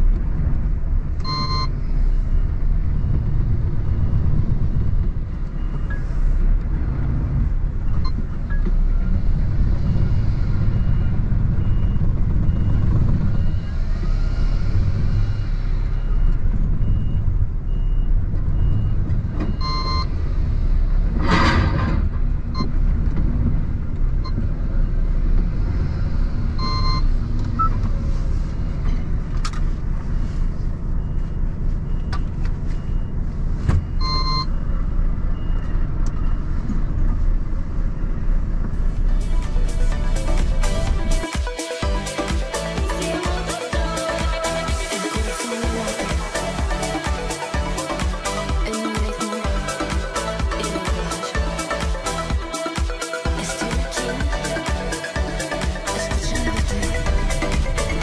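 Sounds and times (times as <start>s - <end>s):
diesel engine idling: 0.0s - 21.3s, 22.2s - 58.0s
reversing alarm beeping: 1.2s - 4.8s, 9.8s - 20.1s, 26.6s - 27.8s, 33.8s - 36.4s, 39.6s - 58.0s.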